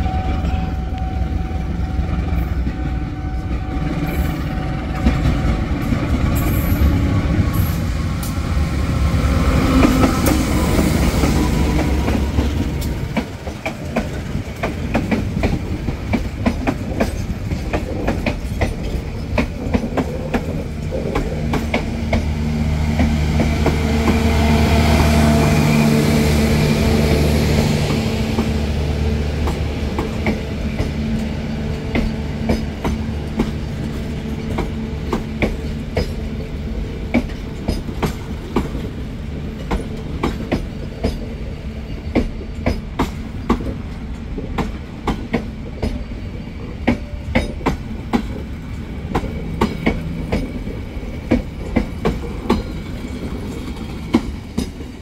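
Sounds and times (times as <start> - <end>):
train rumble: 0.0 - 55.0
train wheels clicking over rail joints: 9.5 - 24.3, 29.4 - 55.0.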